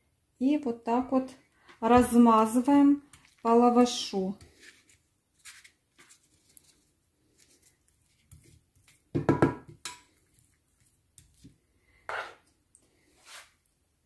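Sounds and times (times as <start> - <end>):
spoon scraping a ceramic dish: 12.1 - 12.5.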